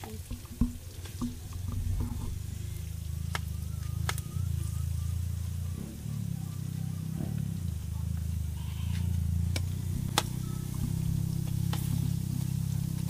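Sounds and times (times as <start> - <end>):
steady low hum: 0.0 - 13.0
sharp clicks: 3.3 - 4.3.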